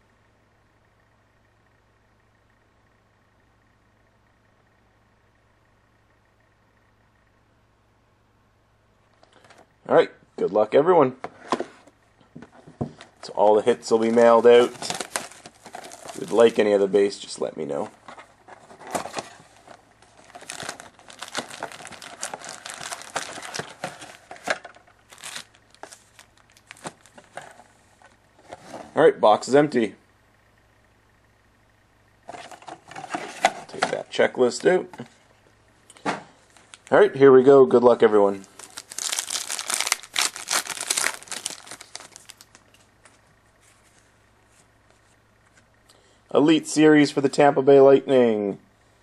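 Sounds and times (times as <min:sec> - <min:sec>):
cards rustling: 0:12.9 - 0:29.0, 0:38.4 - 0:45.6
plastic wrappers crinkling: 0:13.3 - 0:16.8, 0:18.6 - 0:28.2, 0:38.4 - 0:43.2.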